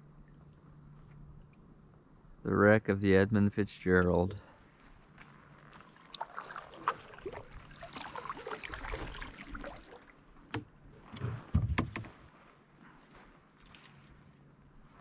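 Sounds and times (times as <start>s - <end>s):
paddle splashing water: 5.6s - 15.0s
paddle knocking on kayak: 11.4s - 12.2s.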